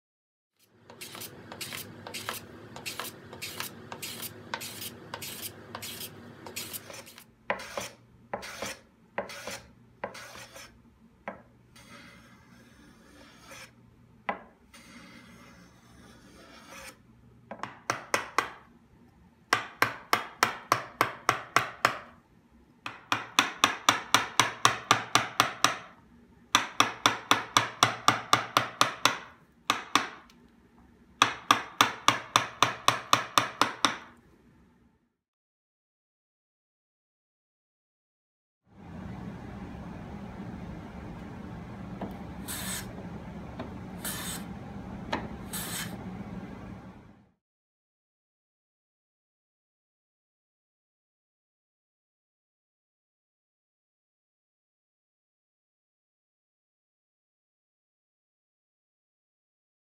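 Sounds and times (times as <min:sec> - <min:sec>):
rasping strokes on wood: 0:00.9 - 0:10.7, 0:11.8 - 0:13.8, 0:14.8 - 0:17.0
mallet tapping carving gouge: 0:19.5 - 0:22.1, 0:22.9 - 0:25.9, 0:26.6 - 0:30.3, 0:31.2 - 0:34.1.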